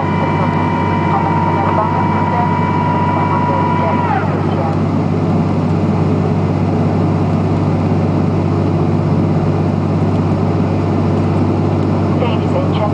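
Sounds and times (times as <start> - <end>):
jet engines and airflow hum: 0.0 - 12.9.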